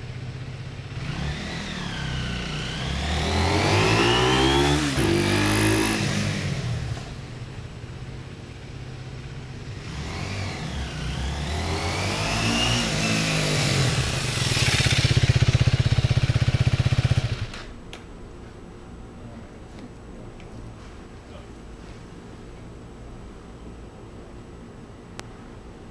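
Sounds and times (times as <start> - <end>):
motorcycle engine revving: 0.0 - 7.6, 9.4 - 17.7.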